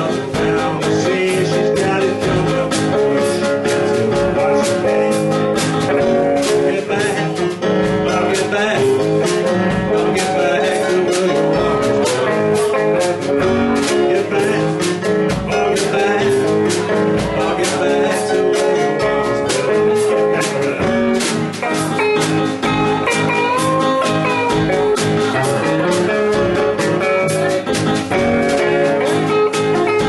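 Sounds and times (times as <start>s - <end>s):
man singing: 0.0s - 22.2s, 23.1s - 30.0s
rock band playing: 0.0s - 30.0s.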